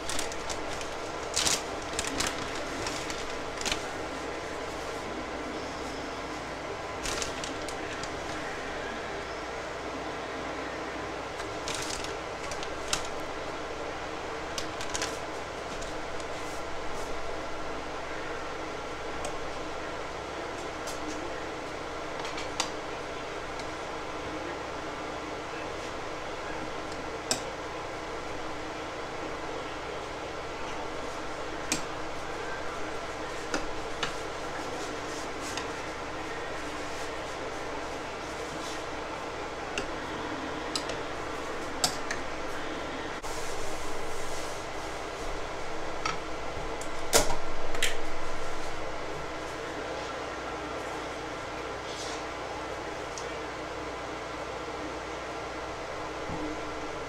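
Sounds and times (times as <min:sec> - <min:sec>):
plastic pouch crinkling: 0:00.0 - 0:03.9
steady fan-like hum: 0:00.0 - 0:57.0.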